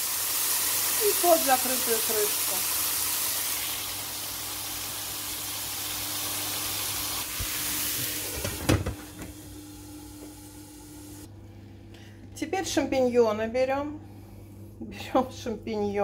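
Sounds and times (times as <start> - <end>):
chicken sizzling in a frying pan: 0.0 - 8.3.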